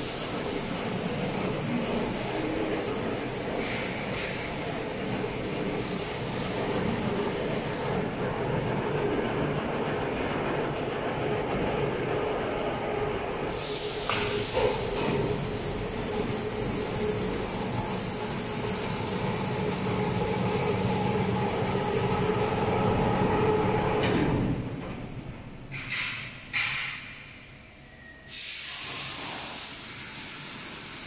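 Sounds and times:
factory machinery hum: 0:00.0 - 0:31.0
high hiss: 0:13.5 - 0:19.2, 0:28.3 - 0:31.0.

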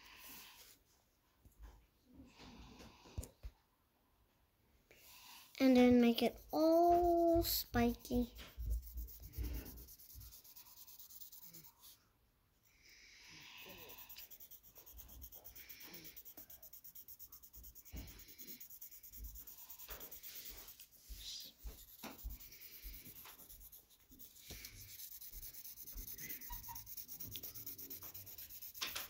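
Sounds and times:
pencil scratching on paper: 0:05.6 - 0:12.0, 0:13.4 - 0:29.0.

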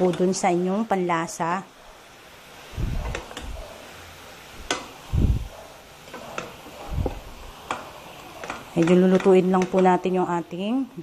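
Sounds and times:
wooden spatula clicking on pan: 0:07.6 - 0:10.0.

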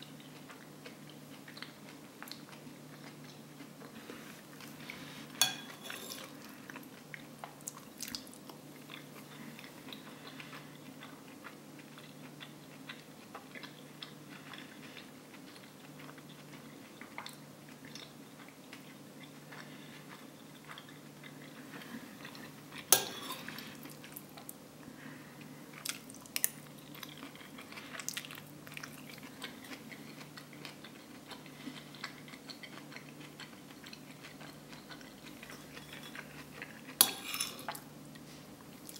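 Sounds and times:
soft chewing: 0:00.0 - 0:38.9
metal spoon clinking on plate: 0:05.4 - 0:06.2, 0:22.9 - 0:23.4.

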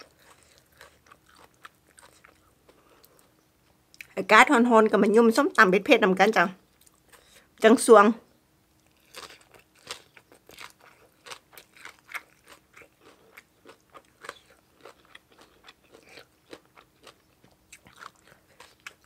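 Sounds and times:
chewing crisp food: 0:00.0 - 0:04.2, 0:06.7 - 0:07.5, 0:08.7 - 0:19.0.

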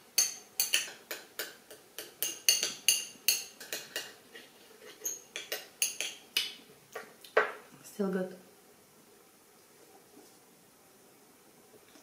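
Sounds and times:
utensils clinking against dish: 0:02.0 - 0:04.1, 0:04.9 - 0:06.2.

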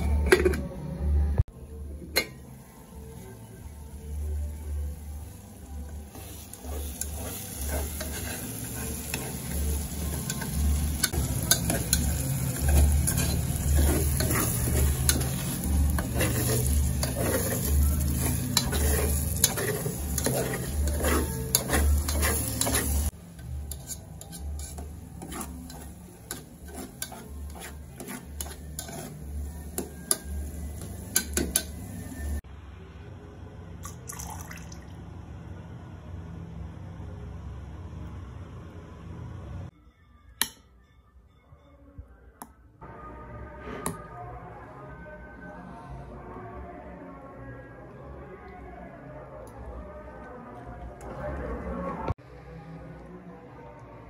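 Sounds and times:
sauce sizzling: 0:05.1 - 0:32.4
spoon scraping metal pot: 0:06.1 - 0:31.9.

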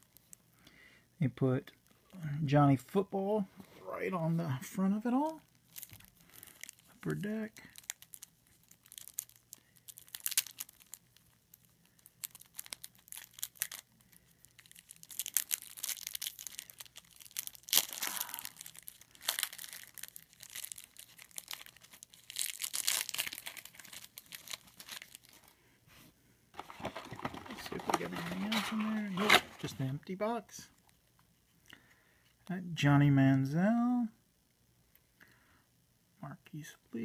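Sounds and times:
plastic wrapper crinkling and tearing: 0:00.0 - 0:00.5, 0:05.0 - 0:25.6, 0:26.6 - 0:30.0.

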